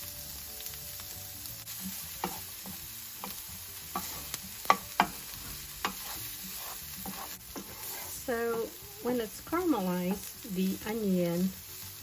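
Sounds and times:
shallots sizzling in fat: 0:00.0 - 0:12.0
spatula scraping and tapping pan: 0:02.1 - 0:08.8, 0:09.4 - 0:10.4.

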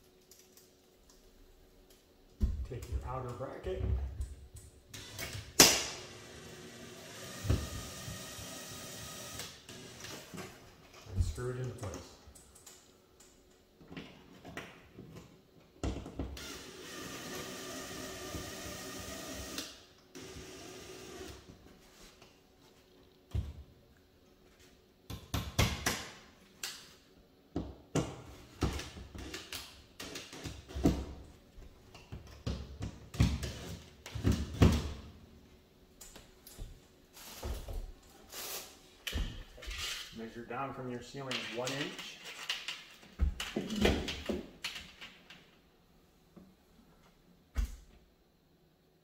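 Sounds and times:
cordless drill driving screw: 0:06.0 - 0:10.2, 0:16.4 - 0:21.4.

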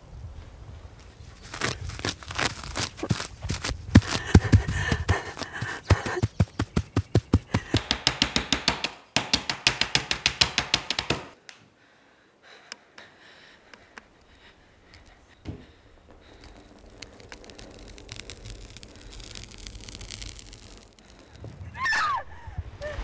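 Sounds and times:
grass tearing snapping clicks: 0:01.4 - 0:09.0, 0:13.7 - 0:21.5.

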